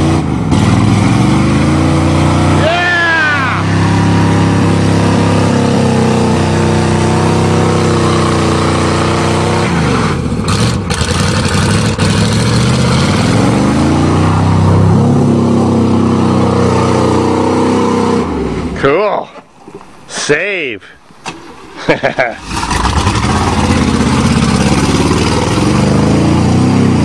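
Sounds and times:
engine revving high: 0.0s - 18.8s, 22.4s - 27.0s
tyres spinning through mud: 22.3s - 27.0s.

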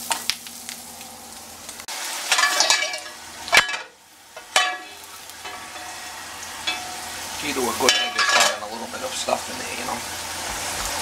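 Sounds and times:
grease sizzling in skillet: 0.0s - 11.0s
sharp metallic knocks: 3.6s - 7.2s.

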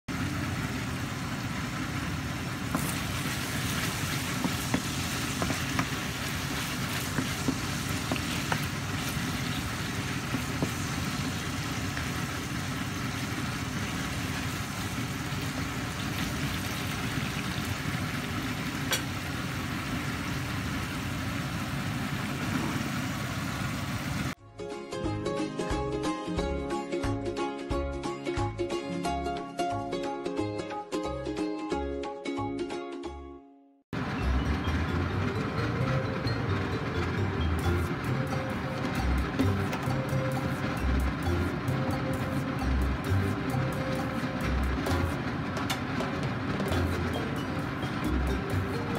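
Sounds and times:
food sizzling in frying pan: 0.1s - 24.4s
spatula stirring pan: 2.6s - 17.7s.

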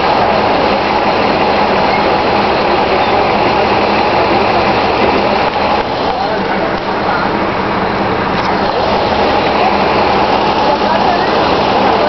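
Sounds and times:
bus diesel engine running: 0.0s - 12.0s.

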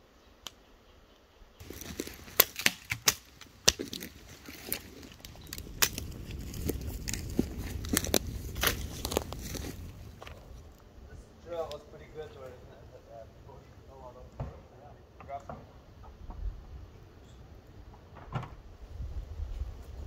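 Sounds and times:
clicks and crinkling of packaging: 1.6s - 10.4s
low rumble: 3.8s - 14.7s.

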